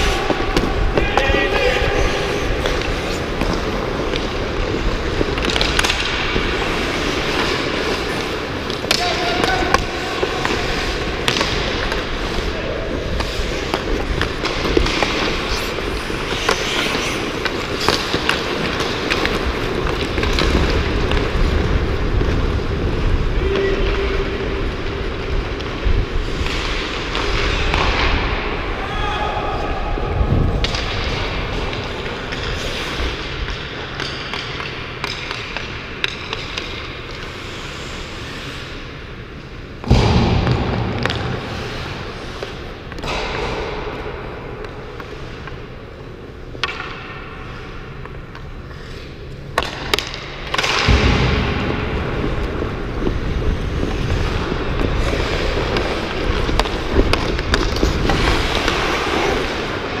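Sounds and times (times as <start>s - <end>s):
hockey sticks and puck knocking: 0.0s - 22.4s, 30.6s - 37.4s, 46.4s - 60.0s
skates scraping on ice: 0.0s - 28.7s, 30.2s - 39.7s, 40.4s - 60.0s.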